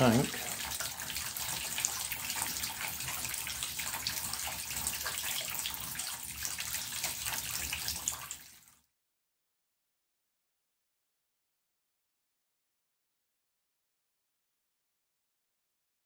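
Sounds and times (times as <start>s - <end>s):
tap water trickling into bath: 0.0s - 8.9s.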